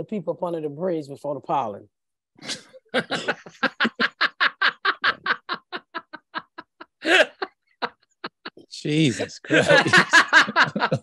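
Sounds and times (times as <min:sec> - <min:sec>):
person laughing hard: 0:02.5 - 0:08.6, 0:09.5 - 0:11.0.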